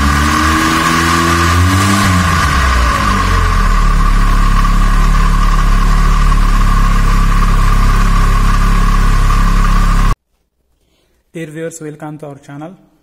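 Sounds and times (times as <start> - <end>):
gasoline engine running: 0.0 - 10.2.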